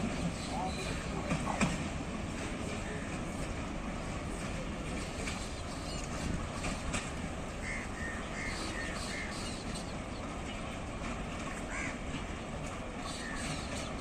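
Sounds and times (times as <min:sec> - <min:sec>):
crow cawing: 0:07.6 - 0:09.3, 0:11.7 - 0:12.0.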